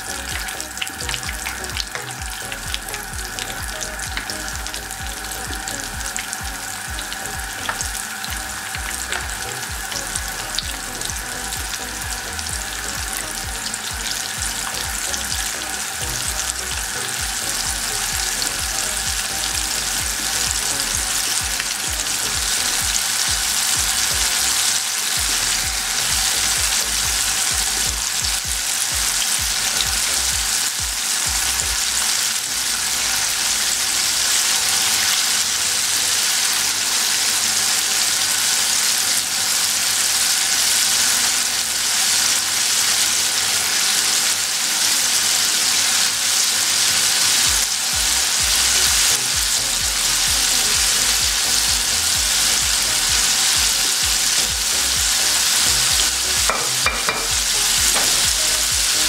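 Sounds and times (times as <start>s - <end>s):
chicken deep-frying in oil: 0.0s - 59.0s.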